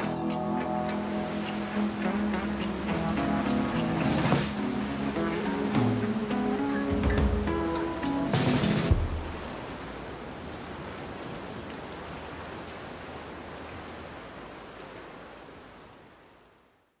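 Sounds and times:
steady rushing noise: 0.0s - 10.4s.

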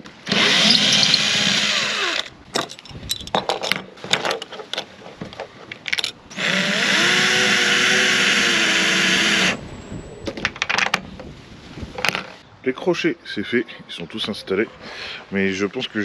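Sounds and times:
electric drill running: 6.4s - 9.6s.

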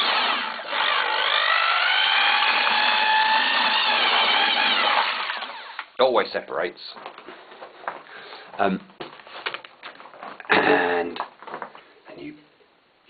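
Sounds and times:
electric drill motor whining: 0.0s - 5.9s.

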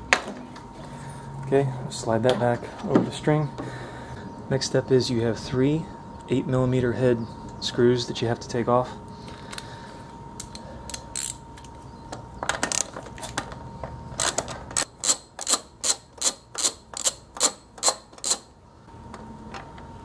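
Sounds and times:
socket ratchet clicking: 14.2s - 18.5s.

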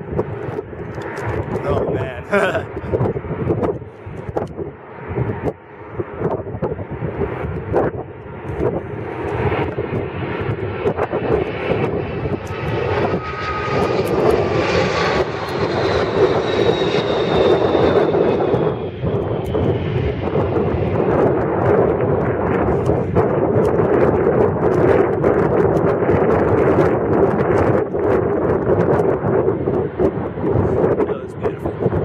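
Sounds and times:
jet engines passing overhead: 0.0s - 32.0s
high engine whine: 8.2s - 23.1s.

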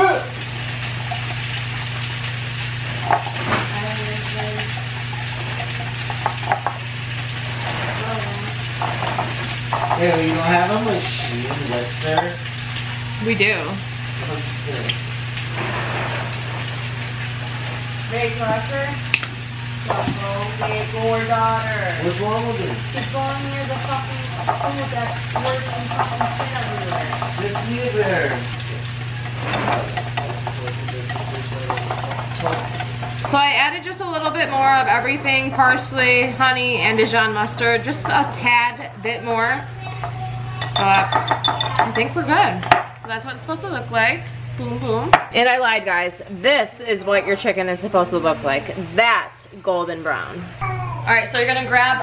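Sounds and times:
steady low hum: 0.2s - 50.6s
whisk scraping glass bowl: 7.4s - 12.3s, 22.9s - 33.6s.

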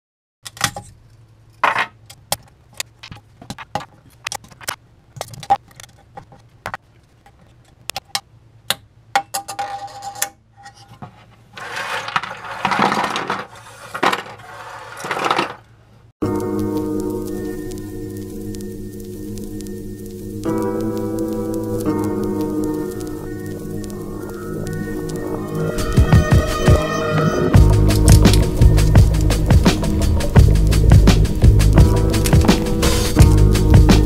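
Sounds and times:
low hum: 16.2s - 34.0s.

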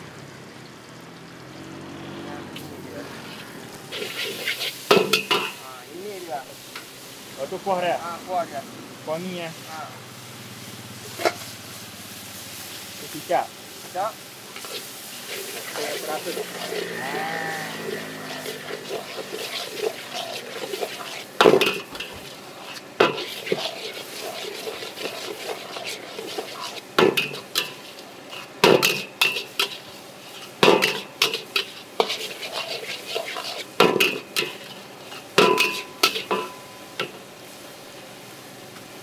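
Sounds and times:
steady sizzle: 0.0s - 39.0s
spatula clanging on wok: 4.9s - 5.6s, 15.6s - 22.2s, 23.0s - 29.8s, 30.6s - 37.2s.

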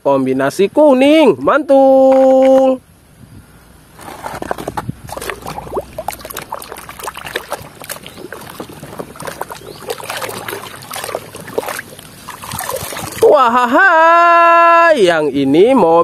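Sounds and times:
water sloshing and splashing: 4.0s - 13.7s.

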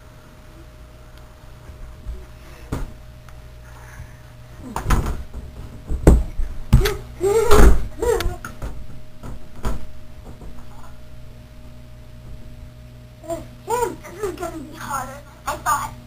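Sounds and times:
thumps and knocks: 4.7s - 10.8s.

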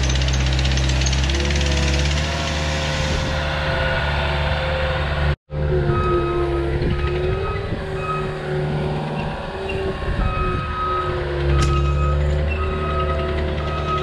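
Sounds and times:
heavy machine engine under load: 0.0s - 14.0s.

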